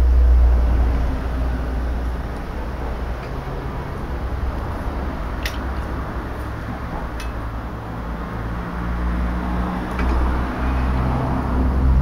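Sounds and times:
low rumble with steady hum: 0:00.0 - 0:12.0
faint clicks of bending rods: 0:05.4 - 0:07.5, 0:09.9 - 0:10.3.

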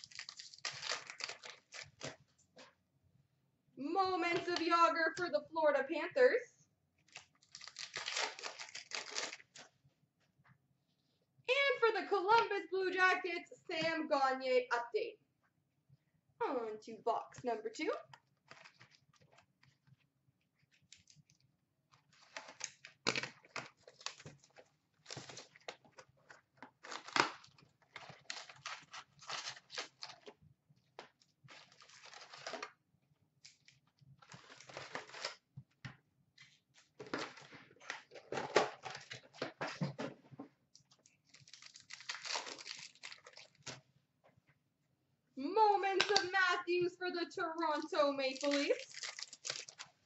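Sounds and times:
tearing and crinkling wrappers: 0:00.0 - 0:02.3, 0:07.1 - 0:09.7, 0:18.4 - 0:19.9, 0:20.6 - 0:30.4, 0:31.4 - 0:32.8, 0:33.4 - 0:35.5, 0:36.8 - 0:39.6, 0:40.8 - 0:43.8, 0:47.7 - 0:50.0.

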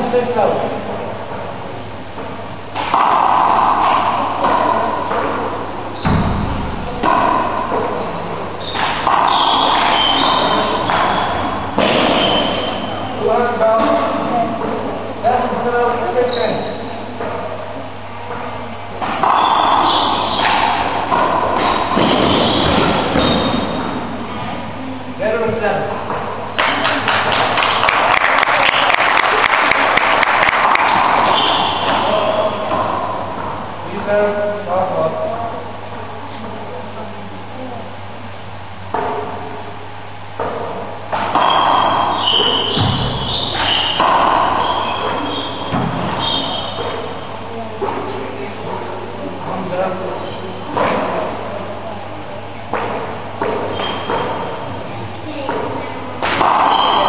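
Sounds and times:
shoe squeaks: 0:05.9 - 0:06.2, 0:08.0 - 0:13.0, 0:16.2 - 0:17.1, 0:19.2 - 0:20.8, 0:21.6 - 0:23.9, 0:31.2 - 0:32.6, 0:41.4 - 0:47.2, 0:53.7 - 0:54.5, 0:56.5 - 0:57.0
audience applauding: 0:26.6 - 0:31.0.

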